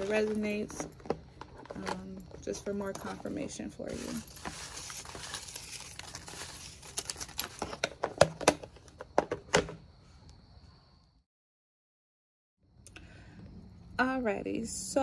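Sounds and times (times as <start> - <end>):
cards being shuffled: 3.9 - 7.9.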